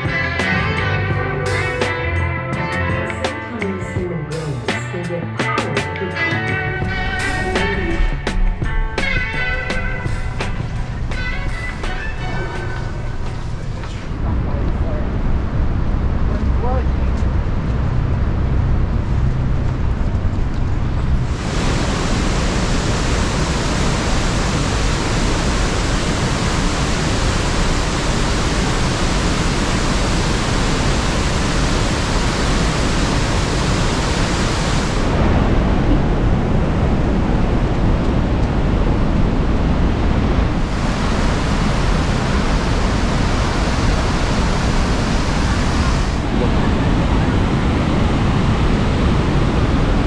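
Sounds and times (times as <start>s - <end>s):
rush of falling water: 20.8s - 50.0s.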